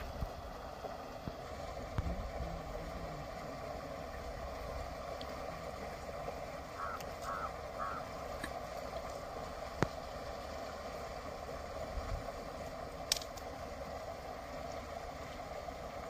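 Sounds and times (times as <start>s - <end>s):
bird calls: 6.8s - 8.1s.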